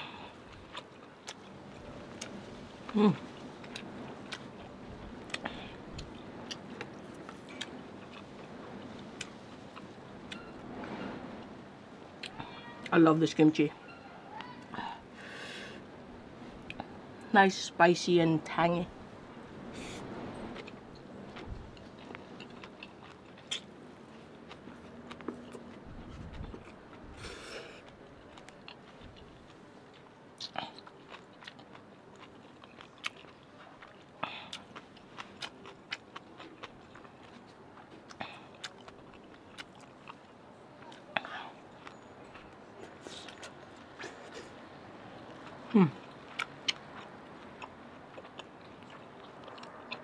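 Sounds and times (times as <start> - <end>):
person chewing food: 0.3 - 10.4, 20.6 - 50.0.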